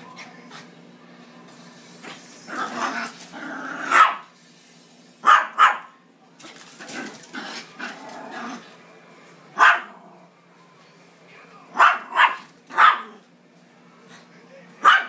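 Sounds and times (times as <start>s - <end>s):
small dog barking: 3.8s - 4.3s, 5.2s - 5.9s, 9.6s - 10.0s, 11.7s - 13.2s, 14.8s - 15.0s.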